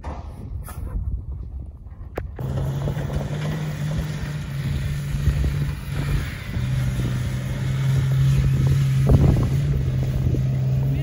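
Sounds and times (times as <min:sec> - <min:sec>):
off-road engine running: 0:02.4 - 0:11.0.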